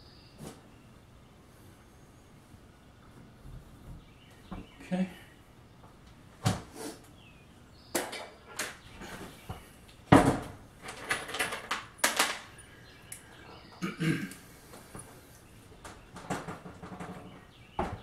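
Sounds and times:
tools knocking and clattering: 8.0 - 8.9, 10.1 - 12.5, 15.8 - 18.0.

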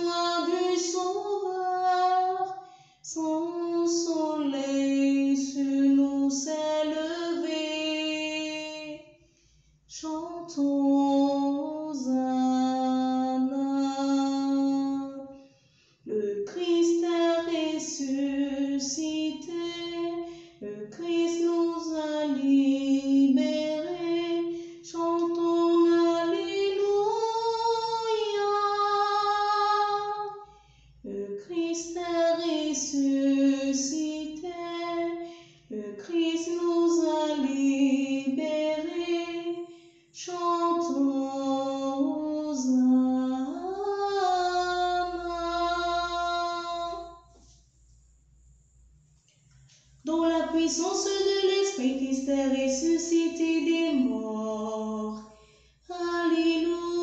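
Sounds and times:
woman singing a hymn unaccompanied: 0.0 - 9.1, 9.9 - 15.4, 16.0 - 47.5, 50.0 - 57.0.

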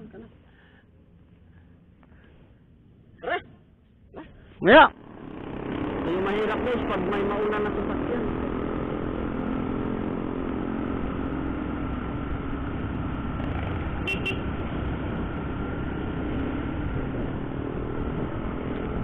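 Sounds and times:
wind and road noise: 0.0 - 19.0
motorcycle engine running: 4.9 - 19.0.

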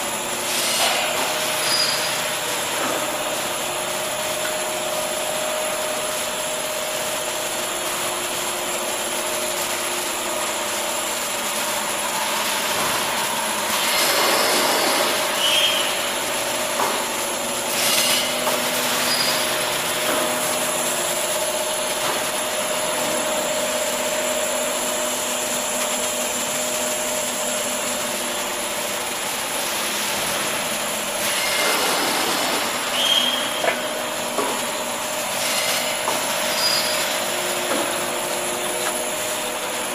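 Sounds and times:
production line machinery whirring: 0.0 - 39.9.

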